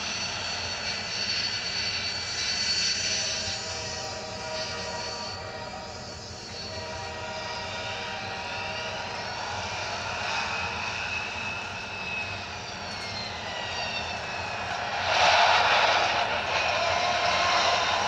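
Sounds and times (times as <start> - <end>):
airplane flying past: 7.3 - 18.0.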